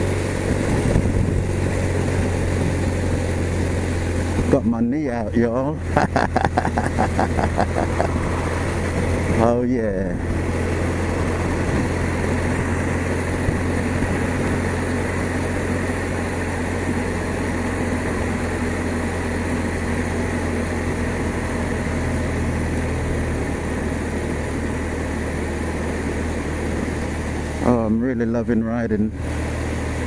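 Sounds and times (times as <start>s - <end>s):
motorcycle engine running: 0.0s - 30.0s
wet road noise: 0.0s - 30.0s
wind rushing: 6.7s - 9.4s.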